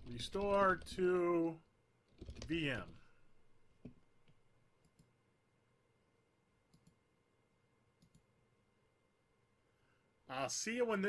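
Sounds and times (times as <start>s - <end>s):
computer mouse clicks: 3.8s - 5.1s, 6.7s - 7.0s, 8.0s - 8.3s.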